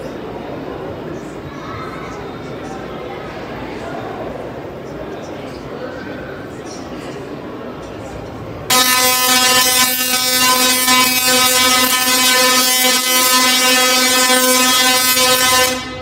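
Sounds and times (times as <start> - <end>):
tesla coil buzzing and crackling: 8.7 - 16.0.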